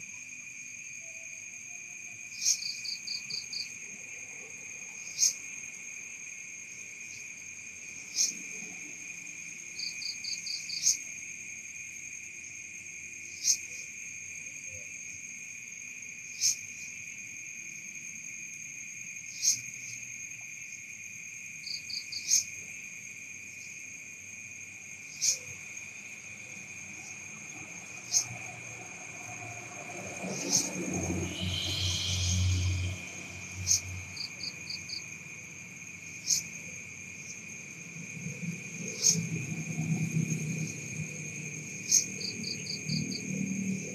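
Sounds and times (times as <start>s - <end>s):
cricket trill: 0.0s - 43.9s
insect chirp: 0.0s - 43.9s
insect rapid rattles: 0.0s - 43.9s
low rumbling noise: 26.6s - 35.8s.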